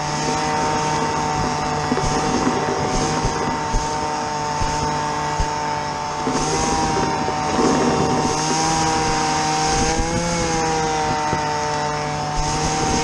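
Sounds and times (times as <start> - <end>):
small engine running: 0.0 - 13.0.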